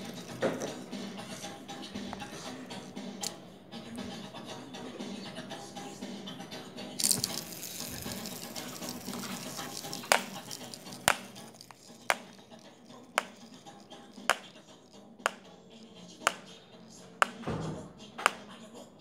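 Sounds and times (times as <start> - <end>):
fidget spinner whirring on tile: 0.0 - 3.4, 6.9 - 17.5.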